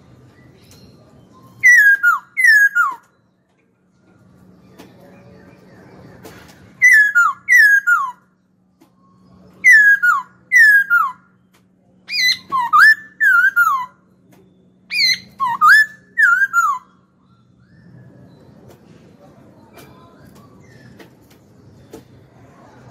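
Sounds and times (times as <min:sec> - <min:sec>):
laughingthrush whistled song: 0:01.3 - 0:03.1, 0:06.8 - 0:08.2, 0:09.0 - 0:11.3, 0:12.1 - 0:14.0, 0:14.9 - 0:18.4.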